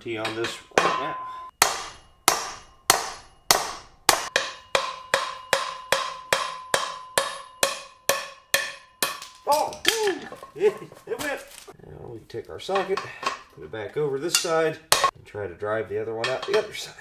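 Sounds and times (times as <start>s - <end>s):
sledge hammer striking steel: 0.1s - 10.6s, 14.4s - 15.2s.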